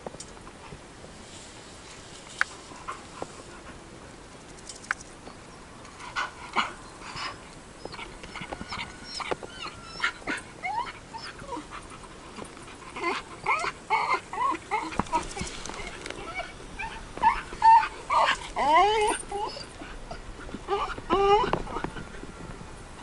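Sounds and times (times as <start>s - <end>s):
dog whining: 7.1s - 11.8s, 13.0s - 21.9s.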